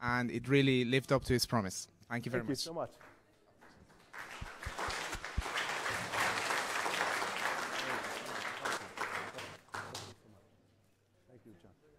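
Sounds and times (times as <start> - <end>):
audience clapping: 3.0 - 10.2.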